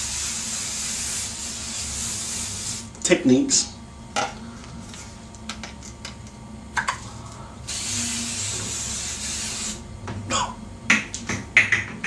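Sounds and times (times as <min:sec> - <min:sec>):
aerosol spray hissing: 0:00.0 - 0:02.9, 0:07.7 - 0:09.8.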